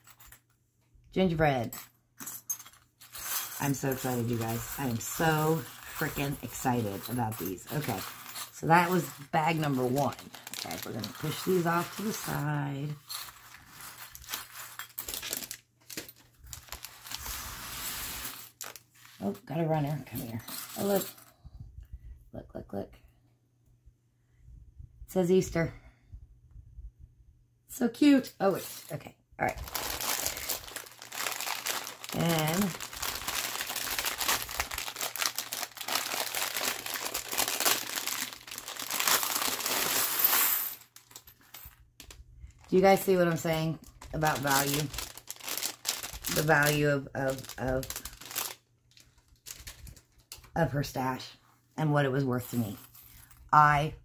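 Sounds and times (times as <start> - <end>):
bags crinkling: 3.0 - 19.4, 29.4 - 50.6.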